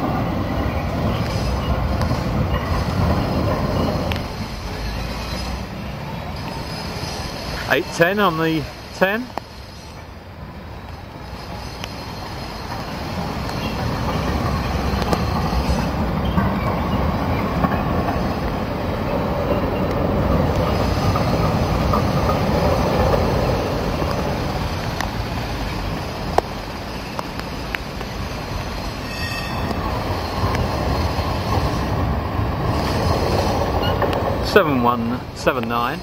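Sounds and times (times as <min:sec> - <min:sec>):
city traffic noise: 0:00.0 - 0:36.0
tram wheel squeal: 0:00.0 - 0:36.0
tram wheels rumbling on rails: 0:00.0 - 0:36.0
high ringing tone: 0:29.0 - 0:29.8.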